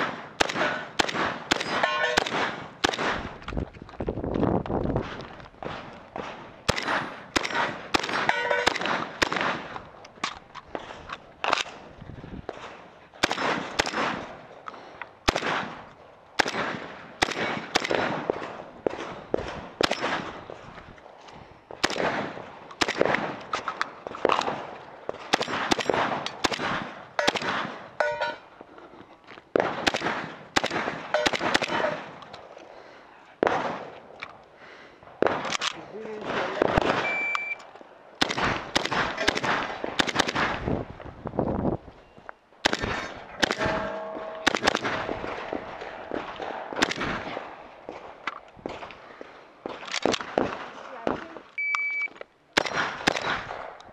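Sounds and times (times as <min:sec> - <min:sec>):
shotgun firing: 0:00.0 - 0:03.4, 0:05.0 - 0:09.8, 0:12.5 - 0:14.4, 0:15.2 - 0:20.4, 0:21.8 - 0:23.5, 0:24.2 - 0:27.9, 0:29.6 - 0:32.2, 0:33.4 - 0:34.0, 0:35.2 - 0:37.2, 0:38.2 - 0:40.8, 0:42.6 - 0:48.9, 0:49.6 - 0:51.3, 0:52.6 - 0:53.8
steel target ringing: 0:01.6 - 0:02.3, 0:08.3 - 0:08.8, 0:28.0 - 0:28.5, 0:43.5 - 0:44.8.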